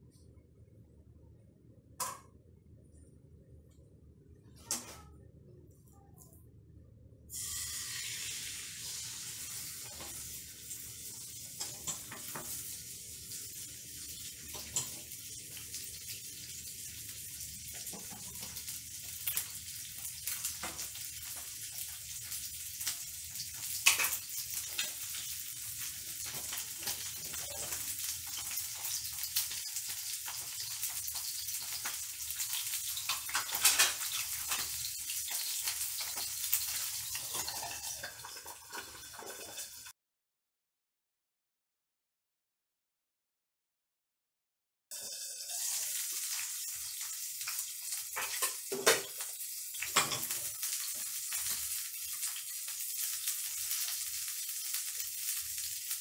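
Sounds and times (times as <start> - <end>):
chicken sizzling in a pan: 7.3 - 40.0, 44.9 - 56.0.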